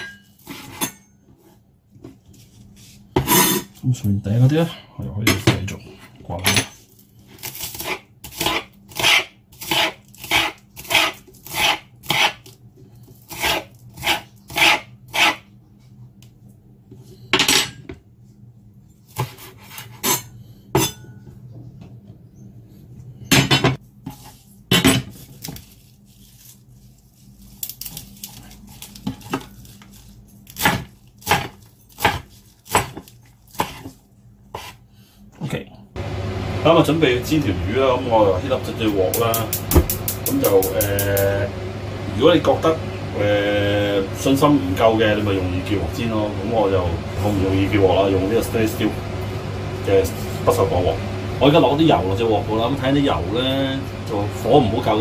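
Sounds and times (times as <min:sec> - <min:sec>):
fork scraping spring onions: 0:07.4 - 0:12.5, 0:13.2 - 0:15.4, 0:24.0 - 0:34.8
knife chopping on cutting board: 0:07.7 - 0:12.4, 0:19.2 - 0:20.0, 0:30.5 - 0:34.8.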